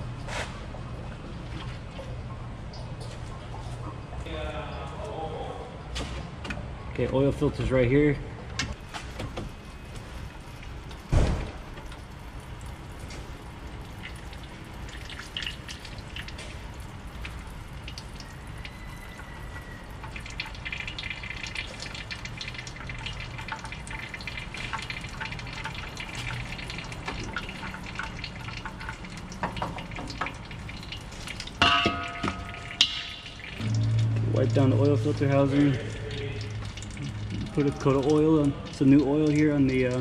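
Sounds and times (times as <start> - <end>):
oil dripping into pan: 8.7 - 40.0.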